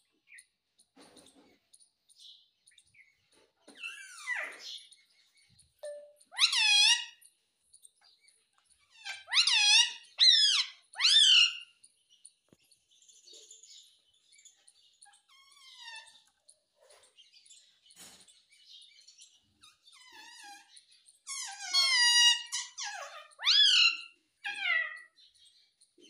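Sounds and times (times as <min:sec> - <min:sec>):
parakeet loud calls: 0:05.8 - 0:07.2, 0:08.9 - 0:11.7, 0:19.7 - 0:25.2
parakeet soft chattering: 0:05.8 - 0:07.2.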